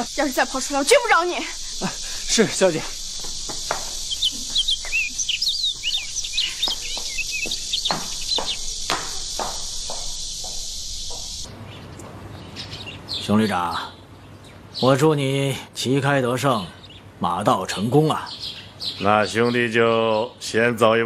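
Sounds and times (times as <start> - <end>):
insect drone: 0.0 - 11.5
small birds chirping: 0.0 - 20.7
dull knocks: 3.2 - 4.6, 5.8 - 11.5.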